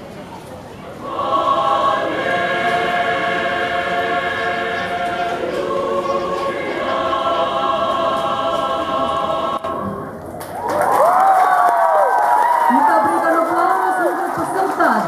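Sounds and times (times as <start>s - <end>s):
mixed choir singing: 1.0s - 10.3s
audience cheering and whooping: 10.4s - 14.7s.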